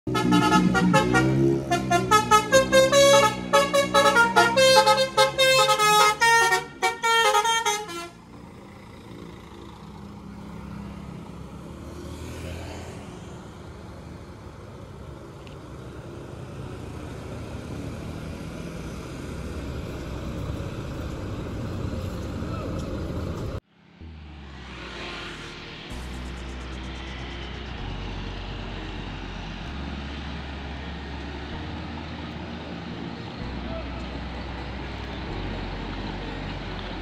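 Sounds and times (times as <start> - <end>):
bus rumbling: 0.0 - 37.0
multi-tone bus horn melody: 0.1 - 8.4
motorcycles passing: 0.1 - 37.0.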